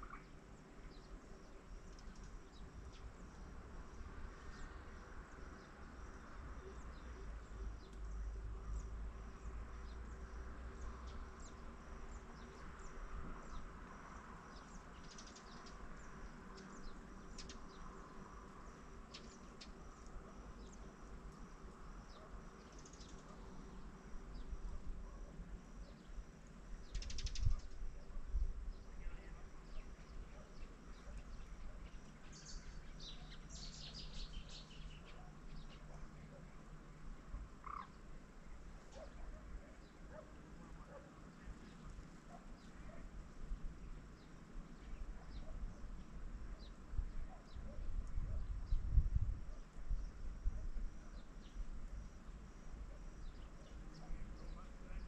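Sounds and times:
bird chirps and calls: 0:29.8 - 0:36.0.

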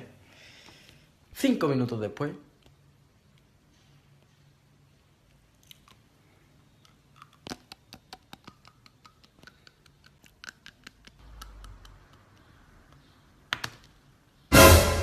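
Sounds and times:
teeth chewing wooden pencil: 0:05.5 - 0:06.1, 0:06.7 - 0:13.3.

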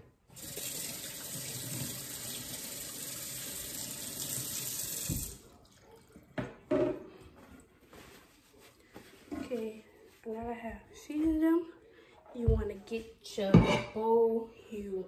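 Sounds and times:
faucet running into steel sink: 0:00.3 - 0:05.7.

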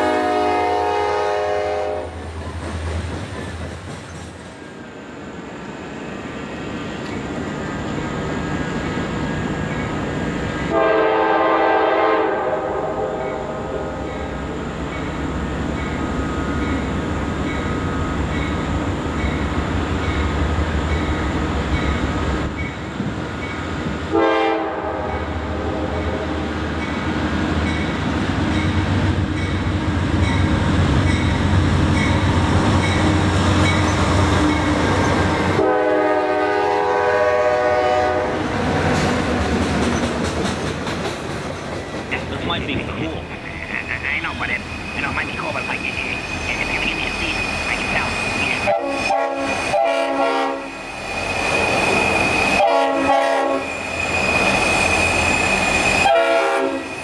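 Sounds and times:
locomotive air horn: 0:00.0 - 0:02.3, 0:10.7 - 0:14.0, 0:24.1 - 0:26.0, 0:35.5 - 0:38.5, 0:48.6 - 0:50.8, 0:52.5 - 0:53.7, 0:56.0 - 0:56.9
diesel engines droning: 0:42.1 - 0:48.8.

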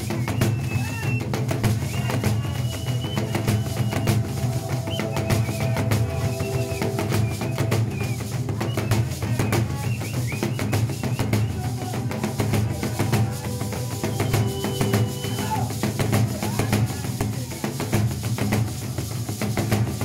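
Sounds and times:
large drums beaten with sticks: 0:00.0 - 0:20.0
high held tones: 0:02.0 - 0:17.4.

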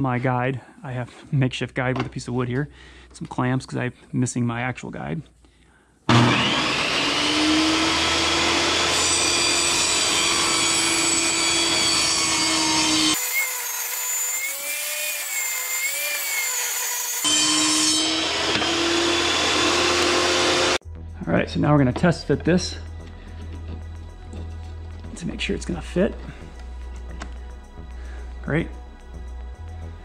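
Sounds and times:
table saw ripping a board: 0:06.1 - 0:20.8.

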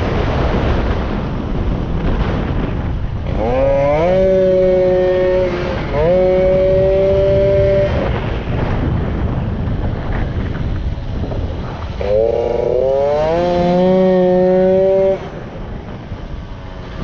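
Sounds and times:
wind buffeting microphone: 0:00.0 - 0:17.0
moped engine revving: 0:03.2 - 0:08.2, 0:11.7 - 0:15.6.

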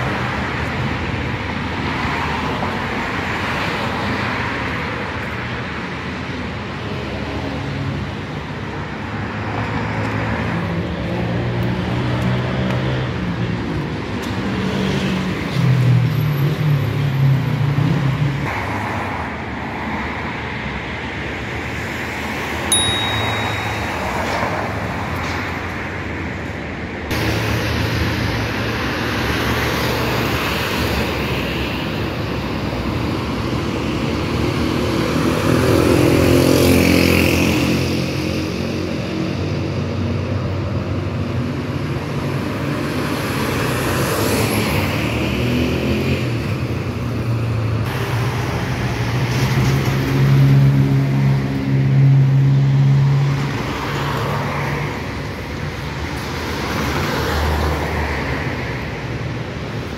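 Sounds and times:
cars driving past: 0:00.0 - 0:59.9
short high ping: 0:22.7 - 0:25.0.

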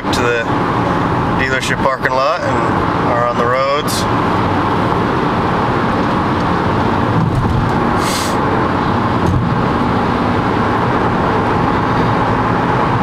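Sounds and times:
road and tyre noise inside a car: 0:00.0 - 0:13.0
brief hiss: 0:08.0 - 0:08.4.

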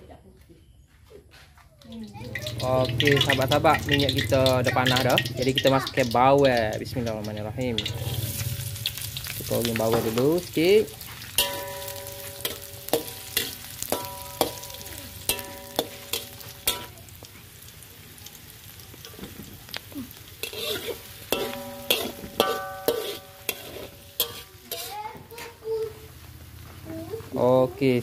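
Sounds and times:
food sizzling in hot oil: 0:01.9 - 0:28.0
metal spatula knocking on wok: 0:02.0 - 0:05.8, 0:11.4 - 0:17.0, 0:21.4 - 0:24.8.

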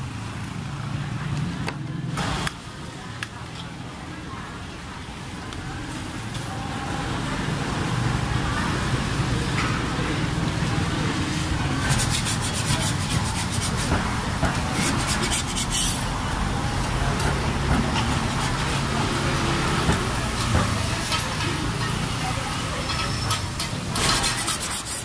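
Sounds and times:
street traffic rumble: 0:00.0 - 0:25.0
metal spatula scraping griddle: 0:11.8 - 0:14.0, 0:14.7 - 0:16.0, 0:22.9 - 0:25.0.

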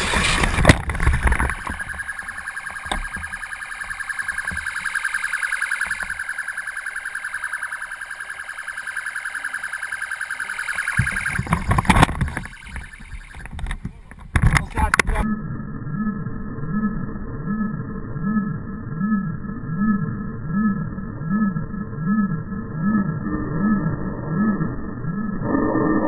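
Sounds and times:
electronic siren pulsing: 0:00.0 - 0:13.8, 0:14.8 - 0:26.0
noisy commotion: 0:00.0 - 0:15.3.

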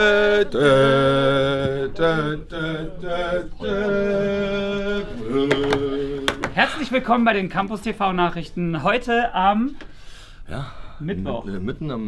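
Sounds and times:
voices singing held notes: 0:00.0 - 0:06.9.

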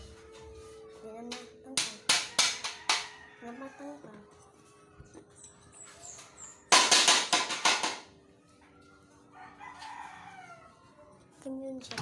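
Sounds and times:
rooster crowing: 0:02.2 - 0:05.3, 0:08.6 - 0:11.2.

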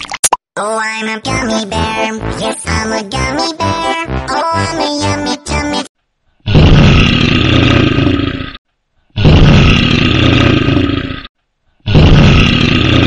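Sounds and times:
bear roaring: 0:09.2 - 0:13.0.

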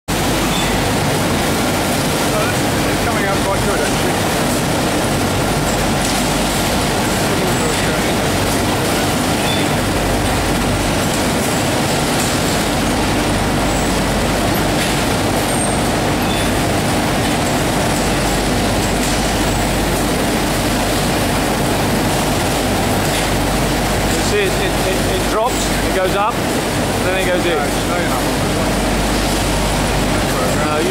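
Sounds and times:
industrial laundry machinery running: 0:00.1 - 0:30.9.

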